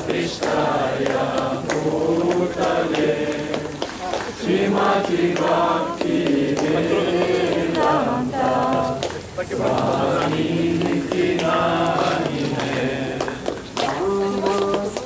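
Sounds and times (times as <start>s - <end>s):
group chanting in unison: 0.0s - 14.6s.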